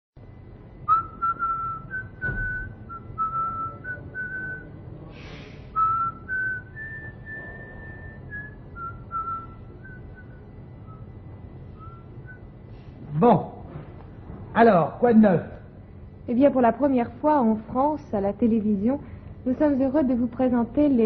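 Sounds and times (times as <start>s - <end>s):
low background hum: 0.2s - 21.0s
person whistling a tune: 0.9s - 4.7s, 5.8s - 11.1s.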